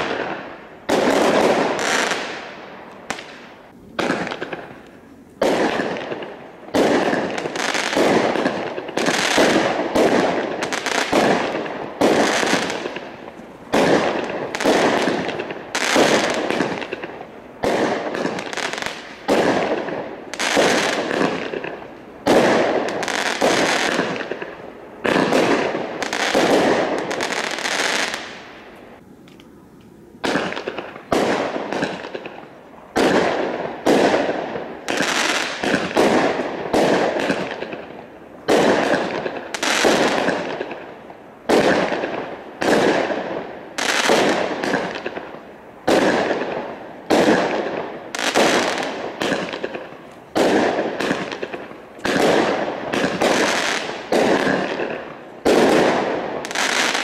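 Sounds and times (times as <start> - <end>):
firework cake shots firing: 45.9 - 57.0.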